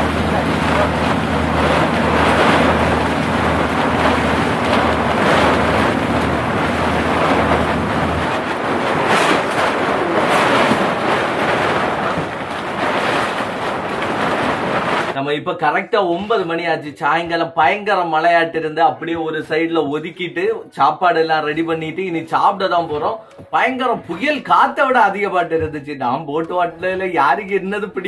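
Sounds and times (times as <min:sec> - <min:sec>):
low engine hum: 0:00.0 - 0:12.6
rain: 0:00.0 - 0:15.2
tarpaulin flapping: 0:00.0 - 0:15.2
wind buffeting microphone: 0:00.0 - 0:15.2.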